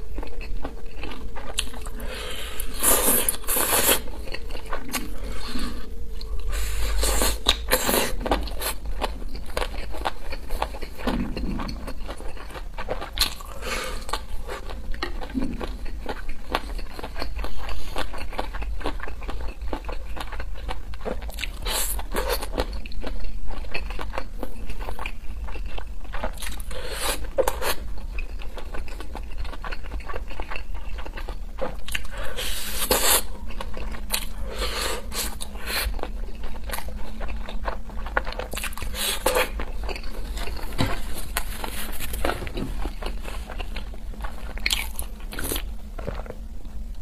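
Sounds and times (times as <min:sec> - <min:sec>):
steady low hum: 0:00.0 - 0:47.0
person biting and chewing: 0:29.6 - 0:46.4.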